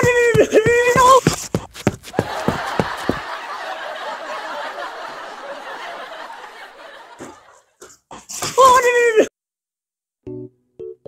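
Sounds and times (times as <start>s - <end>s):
hurried footsteps: 0.0s - 8.0s.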